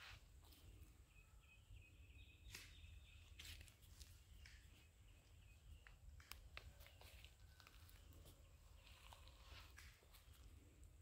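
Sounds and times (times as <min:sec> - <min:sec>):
soft rustling footsteps: 0:00.0 - 0:01.0, 0:03.2 - 0:11.0.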